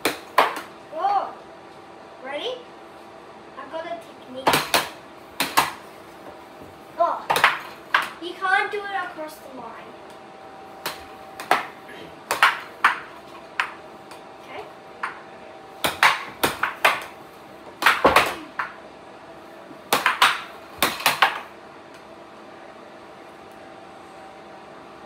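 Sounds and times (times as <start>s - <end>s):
air hockey puck clacking: 0.0s - 0.7s, 4.5s - 5.8s, 7.3s - 8.2s, 10.8s - 14.2s, 15.8s - 18.8s, 19.9s - 21.5s
air blower hum: 4.5s - 25.0s.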